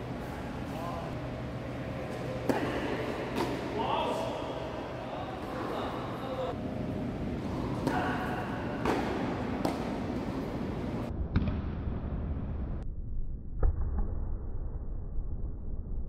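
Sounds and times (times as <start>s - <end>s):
tennis racket hitting ball: 2.1s - 3.8s, 7.4s - 10.7s.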